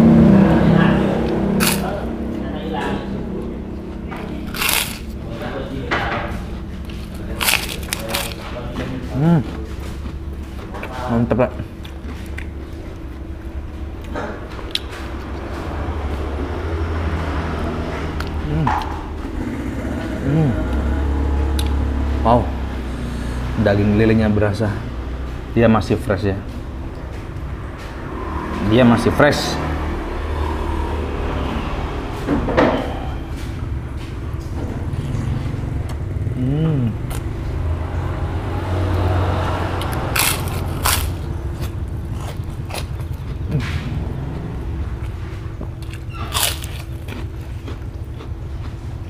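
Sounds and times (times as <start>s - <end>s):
passing road vehicle rumble: 0.0s - 9.1s, 12.7s - 49.0s
low background rumble: 0.0s - 16.8s, 39.8s - 49.0s.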